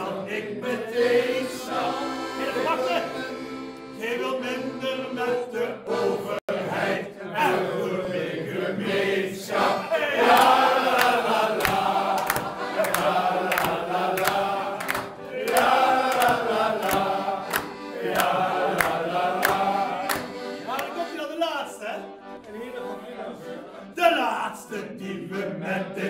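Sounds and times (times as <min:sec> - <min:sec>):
men singing together: 0:00.0 - 0:02.8, 0:04.0 - 0:20.7, 0:24.1 - 0:26.0
piano accordion: 0:00.0 - 0:26.0
sharp rhythmic tick: 0:10.3 - 0:21.1.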